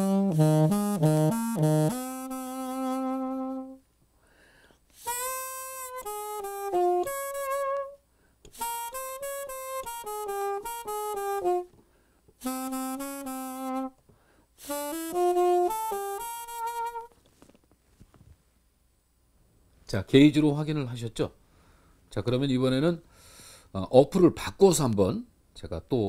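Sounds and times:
muted saxophone melody: 0.0s - 3.8s, 5.0s - 11.8s, 12.4s - 14.0s, 14.6s - 17.2s
player breathing: 4.2s - 4.8s, 14.1s - 14.5s, 23.1s - 23.7s.

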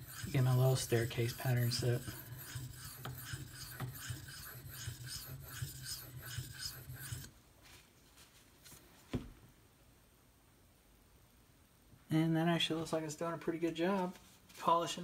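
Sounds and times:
knife scraping on sharpening stone: 0.0s - 7.3s.

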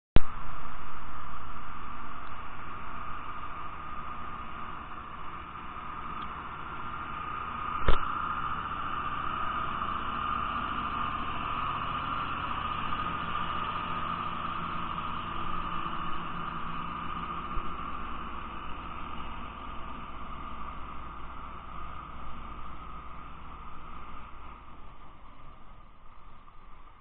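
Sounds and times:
truck diesel engine running: 1.2s - 27.0s
water spraying onto road: 3.5s - 26.2s
sharp thump: 7.8s - 8.1s.

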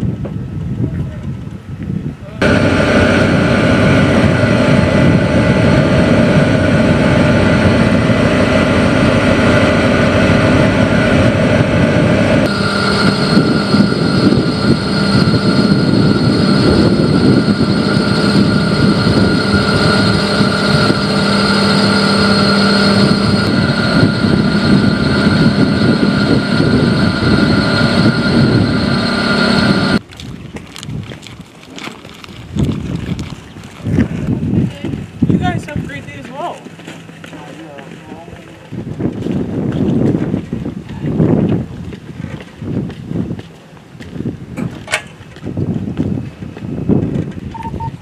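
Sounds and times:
diesel engine rumbling: 2.4s - 30.0s.

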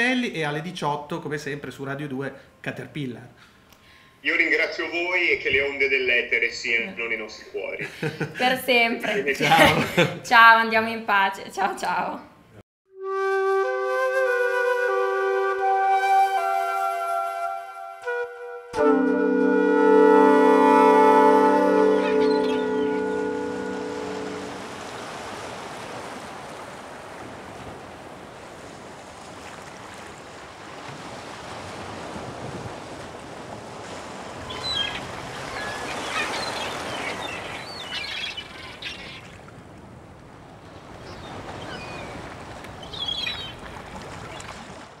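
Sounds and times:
gulls calling: 19.6s - 25.8s, 34.0s - 39.5s, 40.8s - 44.8s
sea waves washing in: 20.1s - 45.0s.

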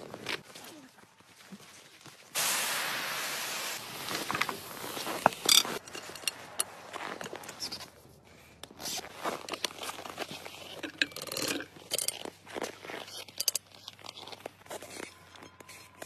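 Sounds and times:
steam hissing from pressure cooker: 2.4s - 4.0s.

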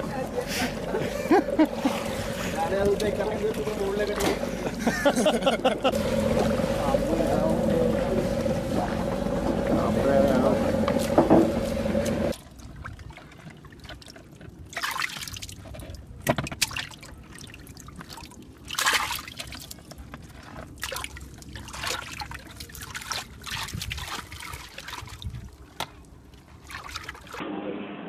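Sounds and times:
boat engine hum: 0.0s - 13.8s
water trickling: 0.0s - 16.0s
hands splashing muddy water: 16.6s - 25.8s.

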